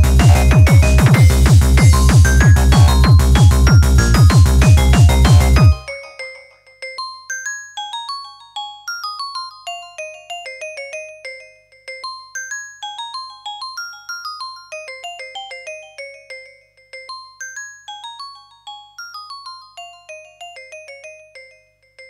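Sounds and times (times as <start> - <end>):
electronic melody of struck notes: 0.0 - 6.7.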